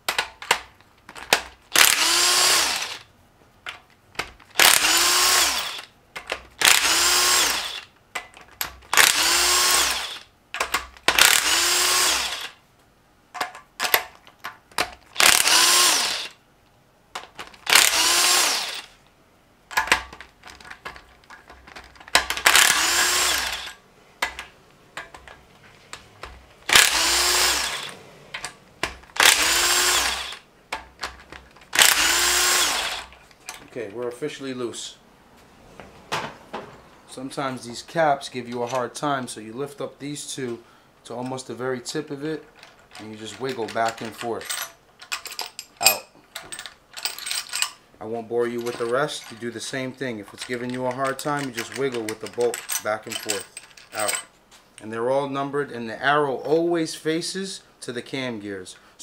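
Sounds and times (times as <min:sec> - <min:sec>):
impact gun whirring: 0:01.7 - 0:03.1, 0:04.5 - 0:05.9, 0:06.6 - 0:07.9, 0:08.9 - 0:12.6, 0:15.1 - 0:16.4, 0:17.5 - 0:19.0, 0:22.1 - 0:25.2, 0:26.0 - 0:30.9, 0:31.7 - 0:33.2.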